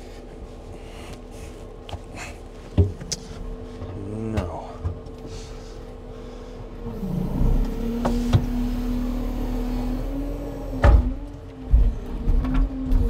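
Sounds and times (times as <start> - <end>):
truck diesel engine revving: 6.7 - 13.0
sharp knocks and clunks: 10.8 - 12.7.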